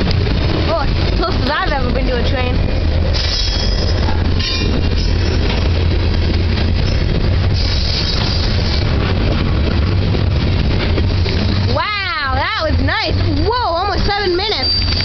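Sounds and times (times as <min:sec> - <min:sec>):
train wheels rumbling on rails: 0:00.0 - 0:15.0
high-pitched wheel squeals: 0:03.2 - 0:05.4, 0:14.2 - 0:15.0.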